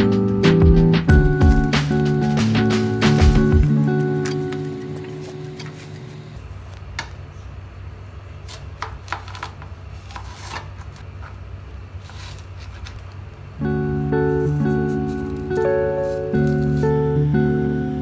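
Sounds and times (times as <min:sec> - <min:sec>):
background music: 0:00.0 - 0:06.4, 0:13.6 - 0:18.0
low steady hum: 0:01.1 - 0:18.0
knife cutting watermelon: 0:08.4 - 0:11.1.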